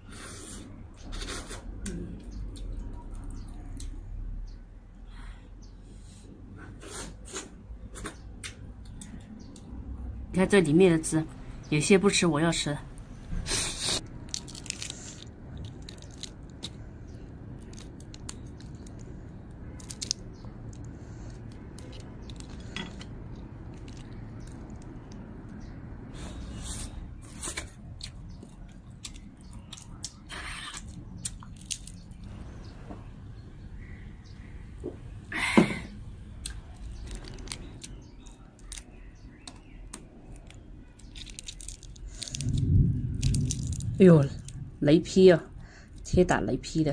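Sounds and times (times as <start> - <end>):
low background hum: 0.0 - 46.9
crayfish shells cracking: 14.0 - 25.6, 28.0 - 32.3, 36.4 - 44.6.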